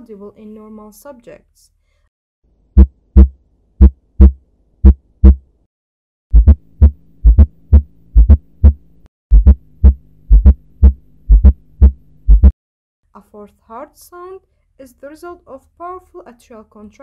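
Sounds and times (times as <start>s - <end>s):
heartbeat through stethoscope: 2.8s - 5.4s, 6.3s - 12.6s.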